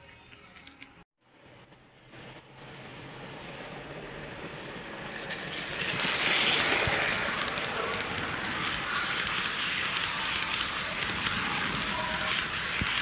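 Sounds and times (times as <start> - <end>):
model train wheels rattling on track: 3.6 - 13.0.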